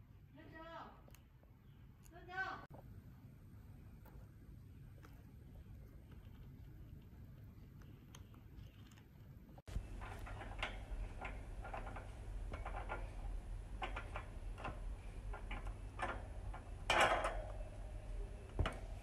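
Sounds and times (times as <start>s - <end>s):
hamster gnawing on wire bars: 9.7s - 17.7s.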